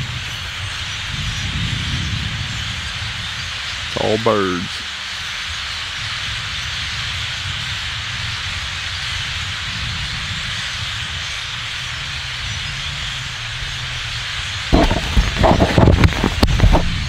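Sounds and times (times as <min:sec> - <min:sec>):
large flock of birds calling: 0:00.0 - 0:17.0
bumps and rumble on microphone: 0:09.5 - 0:17.0.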